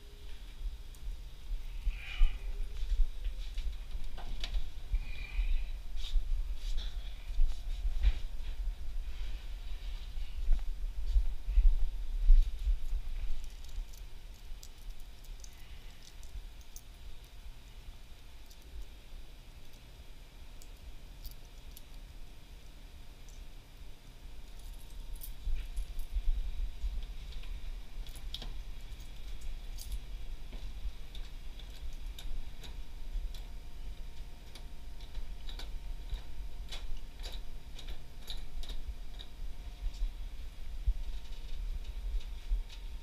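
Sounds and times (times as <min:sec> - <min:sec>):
low steady rumble: 0:00.0 - 0:43.0
keys jingling: 0:12.8 - 0:16.9, 0:24.4 - 0:26.2, 0:28.0 - 0:30.1.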